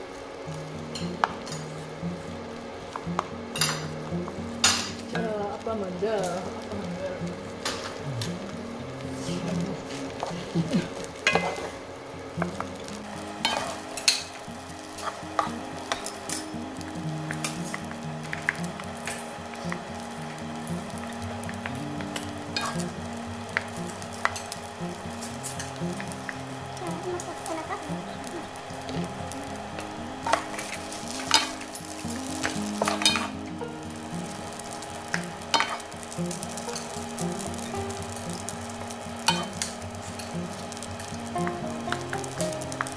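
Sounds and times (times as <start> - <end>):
fried rice sizzling: 0.0 - 42.9
spatula stirring rice in pan: 12.4 - 26.8, 28.8 - 42.9.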